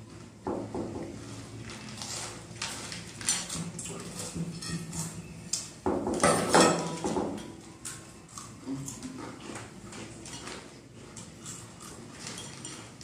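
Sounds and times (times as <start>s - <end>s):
snacks crunching: 7.8s - 13.0s.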